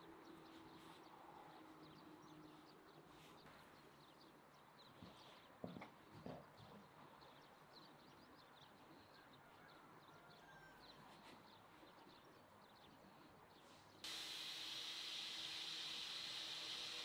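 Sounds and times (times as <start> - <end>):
steady hiss: 14.0 - 17.0.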